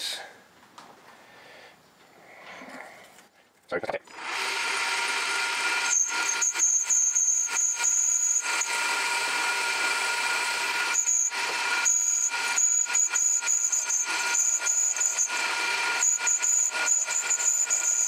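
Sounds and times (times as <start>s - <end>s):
lathe machine whine: 4.1s - 18.0s.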